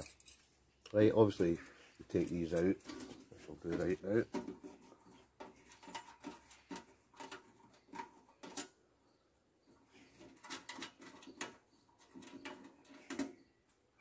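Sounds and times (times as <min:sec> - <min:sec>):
metal parts clicking and tapping: 0:00.0 - 0:00.5, 0:05.4 - 0:08.8, 0:10.1 - 0:13.5.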